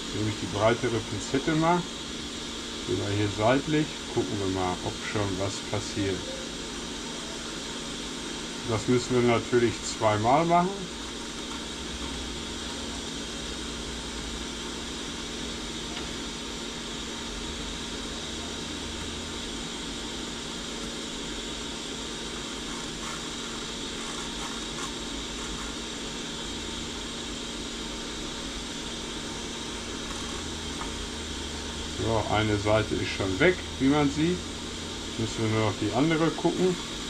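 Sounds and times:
hot air gun blowing: 22.1 - 26.5.

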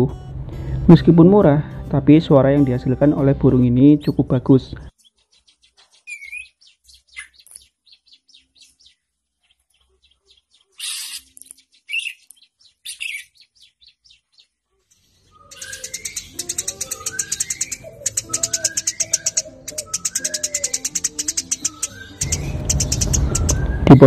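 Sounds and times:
background music: 0.0 - 4.9, 15.6 - 24.0
small bird chirping: 4.9 - 24.0.

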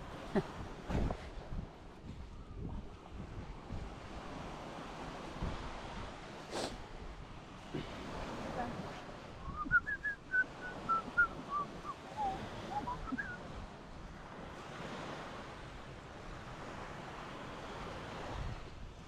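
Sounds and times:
sea surf washing on beach: 0.0 - 19.0
wind buffeting microphone: 0.0 - 19.0
short whistled notes: 9.5 - 13.4.

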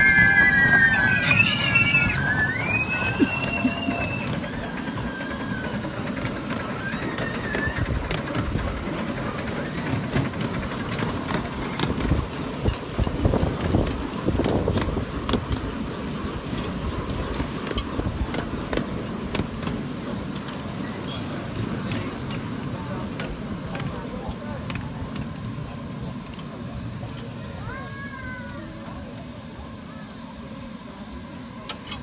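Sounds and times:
wheels rumbling on rails: 0.0 - 32.0.

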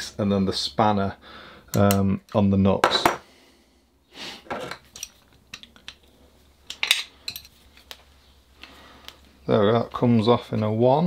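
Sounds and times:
metal tools clinking on valve: 4.6 - 6.0, 6.7 - 7.6.

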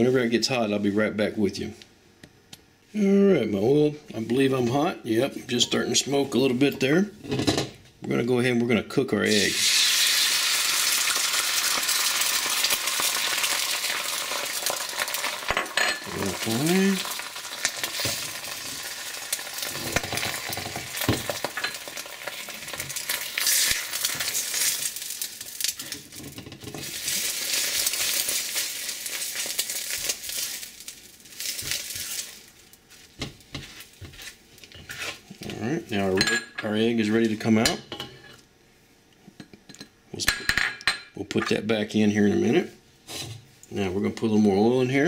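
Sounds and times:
egg sizzling in hot oil: 9.3 - 35.2
spatula scraping a wok: 31.5 - 35.3, 43.0 - 43.4.

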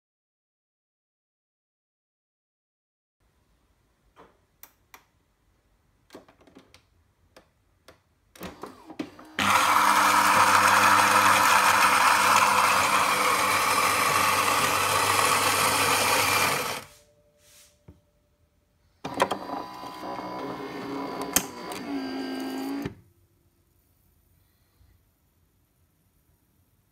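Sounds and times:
coffee grinder grinding beans: 9.1 - 17.0, 19.1 - 23.0.

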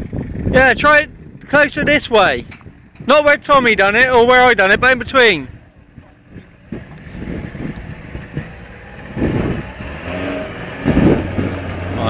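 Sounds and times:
pickup engine revving: 4.6 - 12.0.

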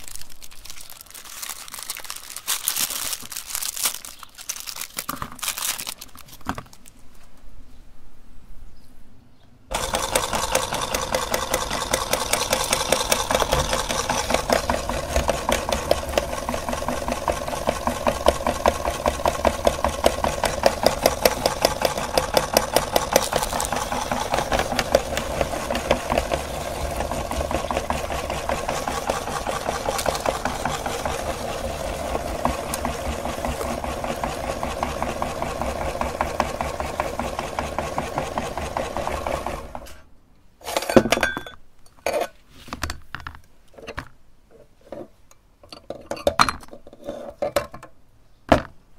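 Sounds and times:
electric meat grinder rattling: 9.7 - 39.9.

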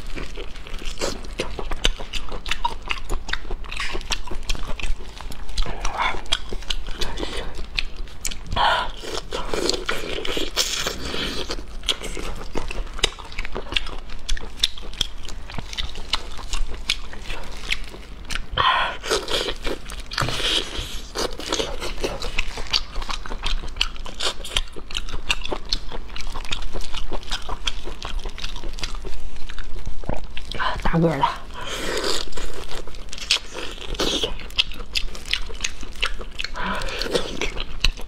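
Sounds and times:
wet biting and chewing: 0.0 - 38.0.

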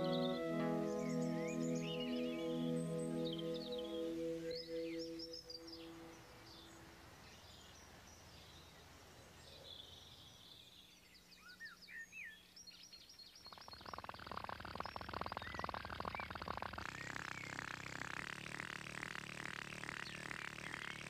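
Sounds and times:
birds chirping and twittering: 0.0 - 21.0
faint outdoor hiss: 0.0 - 21.0
fast buzzing rattle: 13.7 - 21.0.

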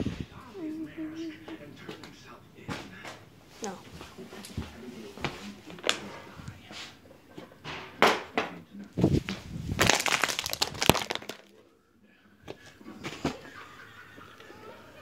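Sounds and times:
crackling and rustling: 9.0 - 11.6.

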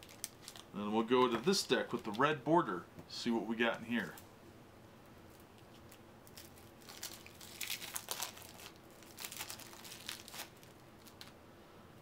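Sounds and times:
plastic wrapping crinkling: 0.0 - 2.3, 5.3 - 11.4.

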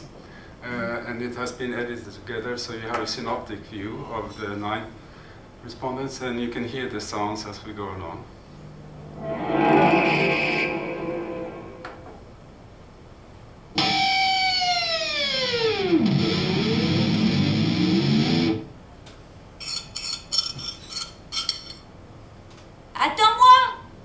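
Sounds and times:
buzzy tone sweeping downward: 8.9 - 12.2.

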